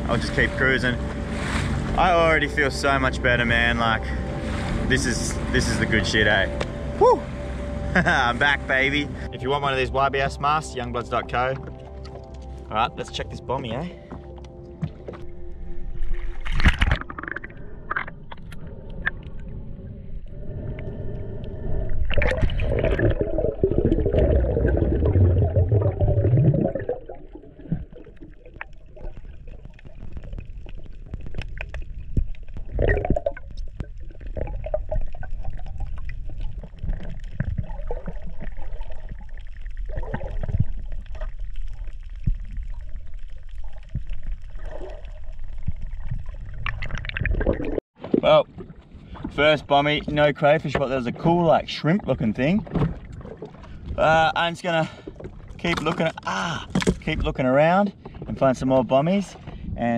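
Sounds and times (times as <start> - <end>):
muffled underwater water rush: 0.0 - 13.2, 15.1 - 59.9
rising tone: 0.1 - 9.4
bubbling: 15.2 - 50.1.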